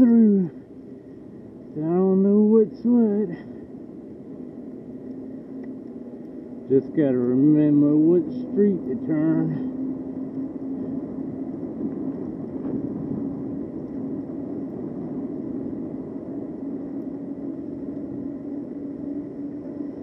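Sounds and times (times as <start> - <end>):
steady low hum: 0.0 - 20.0
wind rush on microphone: 0.0 - 20.0.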